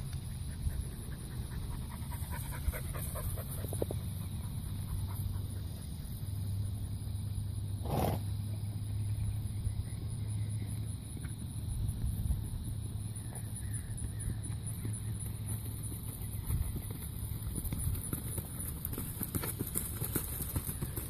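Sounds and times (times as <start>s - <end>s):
horse snorting: 7.8s - 8.4s.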